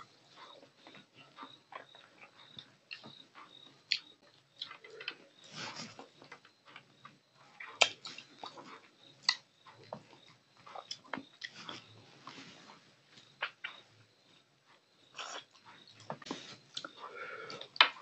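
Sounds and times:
sucking and chewing: 3.9s - 6.3s, 7.6s - 12.3s, 15.1s - 18.0s.

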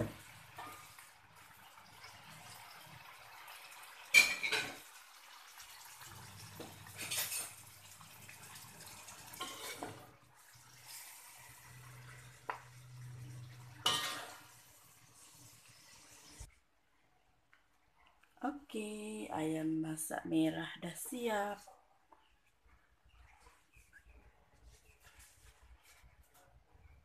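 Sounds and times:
metal utensil scraping and clanking wok: 9.4s - 10.0s, 13.8s - 14.6s.

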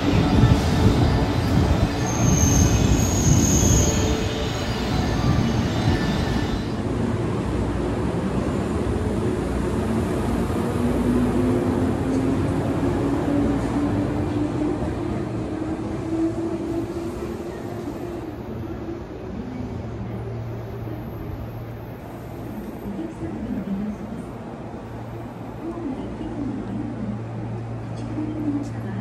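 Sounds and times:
train wheels rumbling on rails: 0.0s - 29.0s
high squeal: 1.9s - 6.7s.

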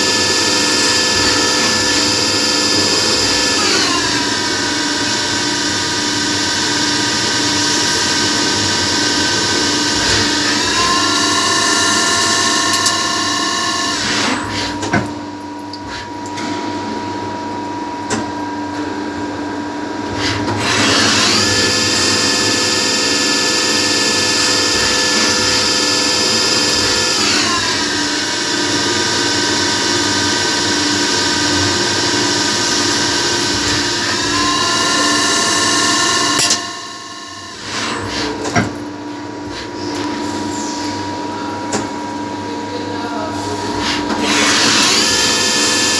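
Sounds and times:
lathe drive whine: 0.0s - 15.4s, 20.0s - 45.9s.

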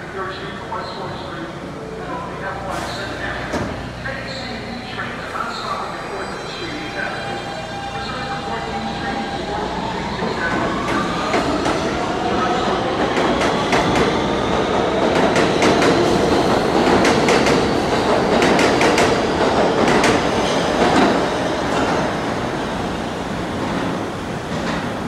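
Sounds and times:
train wheels rumbling on track: 7.4s - 25.0s.

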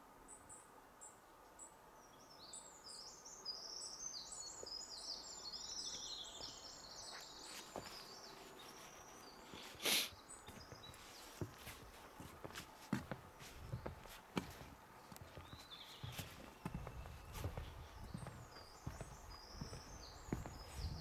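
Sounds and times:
quiet forest ambience: 0.0s - 21.0s
songbird warbling song: 0.3s - 11.6s, 15.0s - 21.0s
footsteps on wooden boardwalk: 5.9s - 9.8s, 10.4s - 21.0s.

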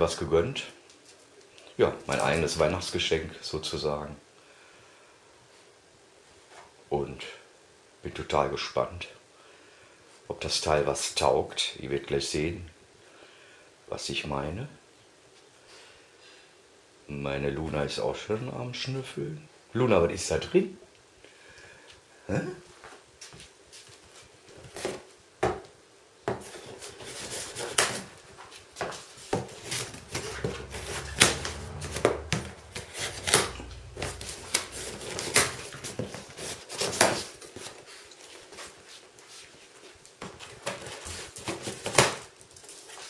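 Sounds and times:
cardboard box being handled: 26.4s - 37.8s
knife cutting plastic straps: 33.0s - 37.4s.

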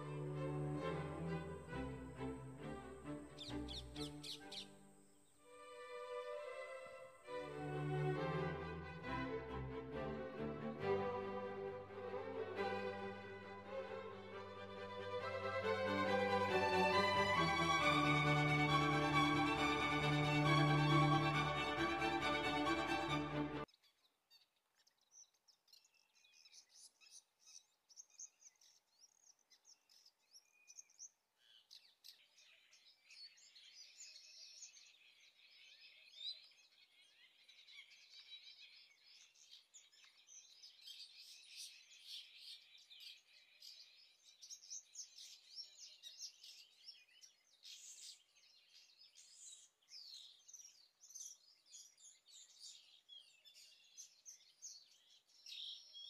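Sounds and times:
birds twittering: 0.0s - 5.3s.

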